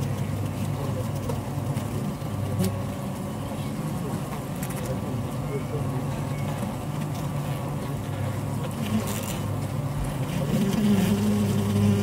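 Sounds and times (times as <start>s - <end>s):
bees humming in hive: 8.7s - 12.0s.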